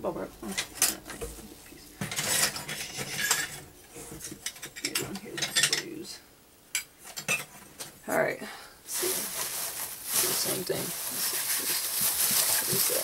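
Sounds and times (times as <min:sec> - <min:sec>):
ceramic pieces clattering: 0:02.1 - 0:03.6.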